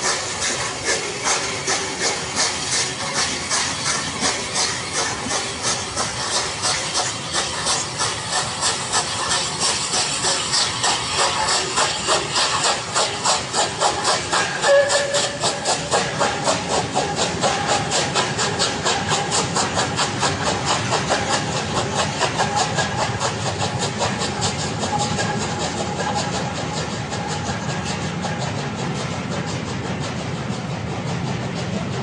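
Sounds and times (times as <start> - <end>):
steam locomotive exhaust beats: 0.0 - 32.0.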